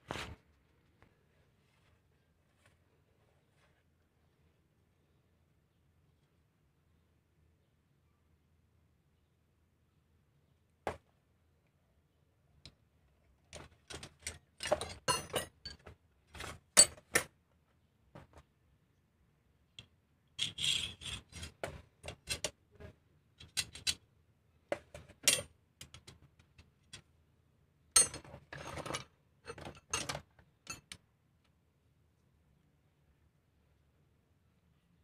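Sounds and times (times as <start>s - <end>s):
metal tools clinking and scraping: 13.6s - 17.3s, 28.0s - 31.0s.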